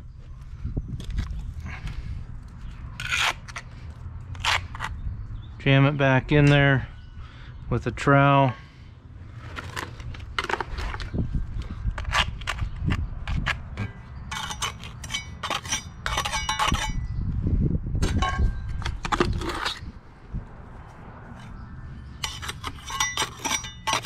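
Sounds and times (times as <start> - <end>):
trowel scraping concrete: 3.0 - 3.7, 12.0 - 17.0, 19.0 - 19.9, 22.2 - 24.0.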